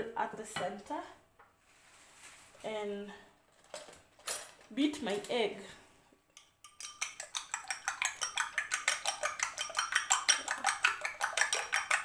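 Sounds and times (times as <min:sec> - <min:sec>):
fork clinking against glass bowl: 0:06.4 - 0:12.0.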